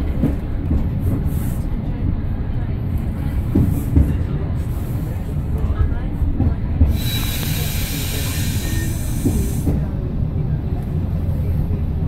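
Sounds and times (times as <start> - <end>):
train low rumble: 0.0 - 12.0
air hiss: 6.9 - 9.8.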